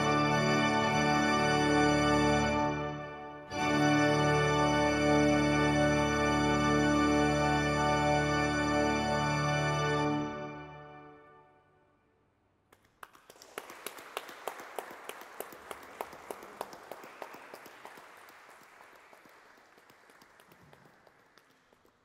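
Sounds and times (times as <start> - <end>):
audience applauding: 12.7 - 22.0.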